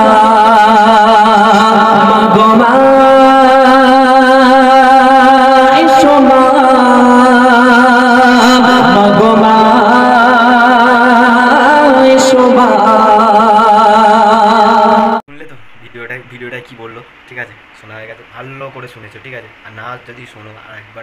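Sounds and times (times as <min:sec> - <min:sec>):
man singing over loudspeaker: 0:00.0 - 0:15.2.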